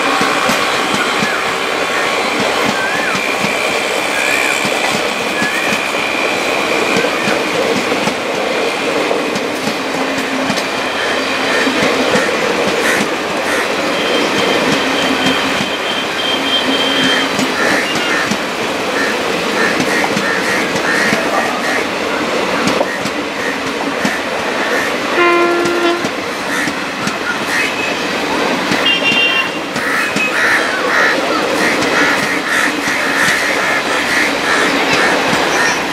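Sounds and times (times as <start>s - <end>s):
clickety-clack over rail joints: 0.0s - 35.9s
wheel and rail noise: 0.0s - 35.9s
pitched horn-like tone: 25.2s - 26.1s.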